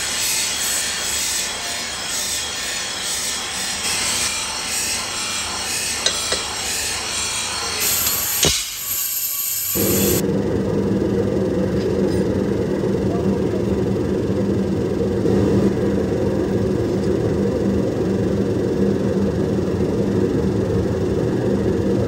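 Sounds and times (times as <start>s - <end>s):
drill press grinding through steel: 0.0s - 10.2s
electric blower humming: 0.0s - 10.2s.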